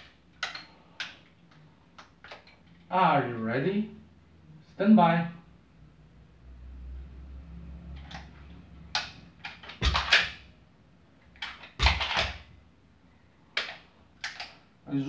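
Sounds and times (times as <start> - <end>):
pistol clicks and clacks: 9.0 - 10.4, 11.4 - 12.4.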